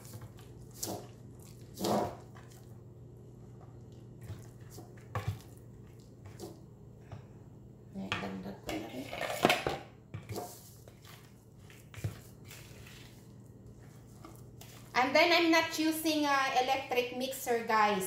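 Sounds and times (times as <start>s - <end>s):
spatula scraping mixing bowls: 0.0s - 2.7s, 10.1s - 15.7s.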